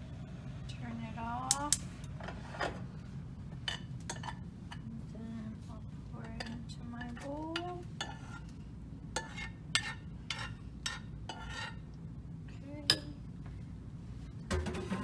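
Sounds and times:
spoon scraping saucepan: 8.0 - 8.5, 9.2 - 11.8.

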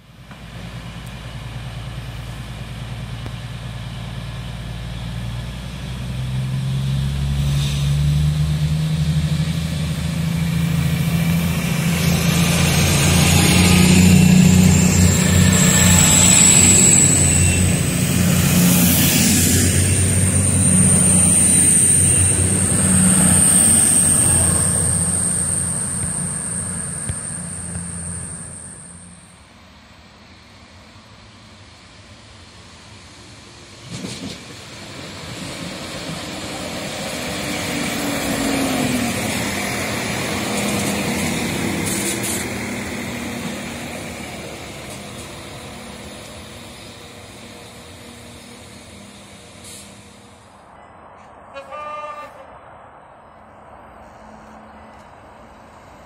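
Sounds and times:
diesel train engines revving: 0.0 - 52.6
high whine rising in pitch: 6.2 - 29.5.

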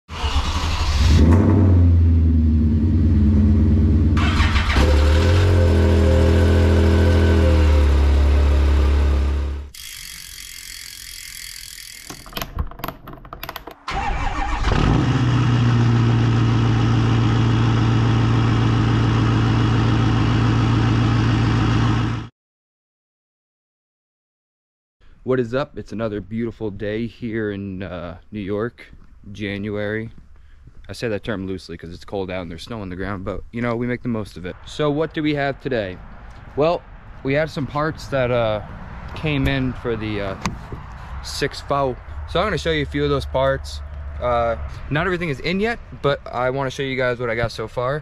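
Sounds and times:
engine running and revving: 0.8 - 9.7, 14.6 - 22.3.

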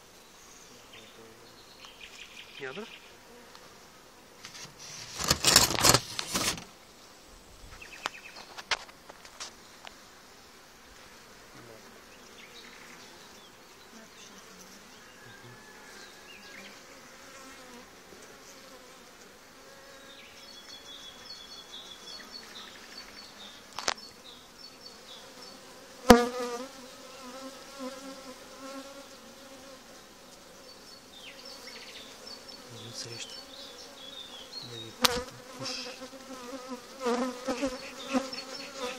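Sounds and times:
bees buzzing: 9.6 - 38.9.

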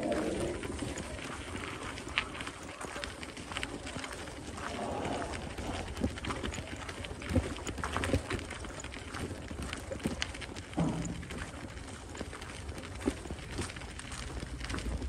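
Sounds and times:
low outdoor rumble: 0.0 - 7.2, 10.2 - 15.0
footsteps on gravel path: 0.0 - 15.0.

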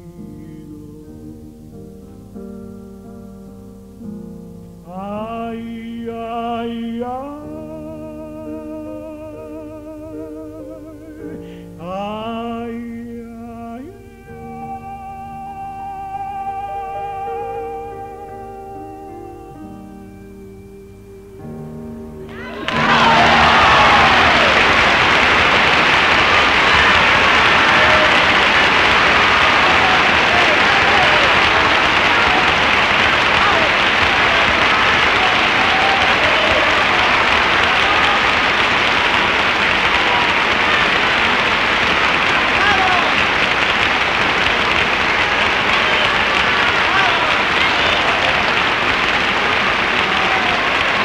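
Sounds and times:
operatic tenor singing: 0.0 - 1.9, 4.9 - 21.6, 22.2 - 51.0
sustained accompaniment: 0.0 - 51.0
audience applauding and cheering: 22.2 - 51.0
people shouting: 22.3 - 39.1, 42.3 - 44.0, 45.0 - 51.0.

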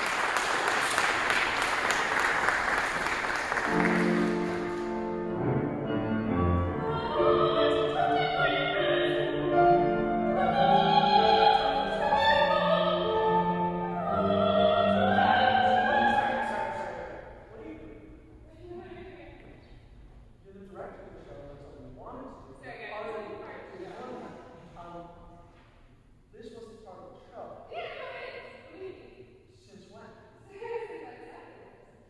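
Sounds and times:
audience applause: 0.0 - 5.1
grand piano: 0.0 - 20.0
woman singing operatic aria: 6.6 - 17.1.

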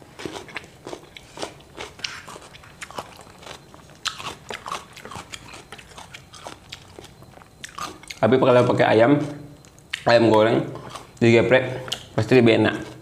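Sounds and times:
chewing crisp cucumber: 0.0 - 13.0.

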